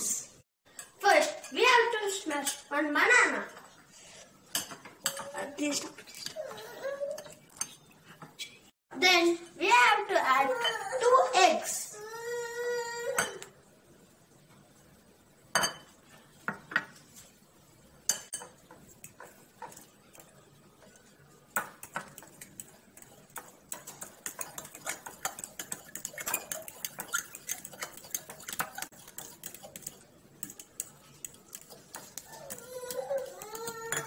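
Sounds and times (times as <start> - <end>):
metal spoon clinking in ceramic bowl: 4.5 - 5.4, 23.0 - 32.6, 33.2 - 34.0.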